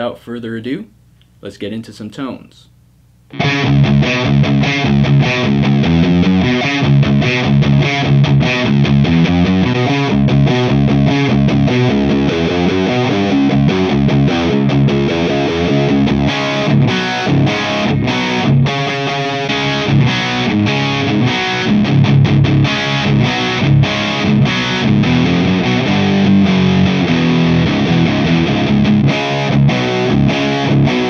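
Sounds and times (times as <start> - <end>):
distorted electric guitar riff: 3.3 - 31.0.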